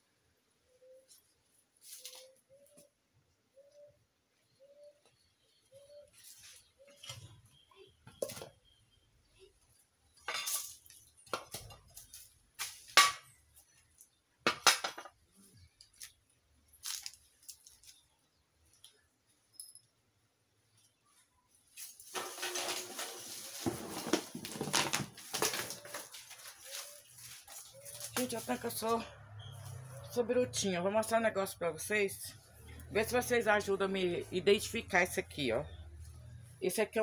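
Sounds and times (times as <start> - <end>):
hard objects clattering: 22.0 - 27.0.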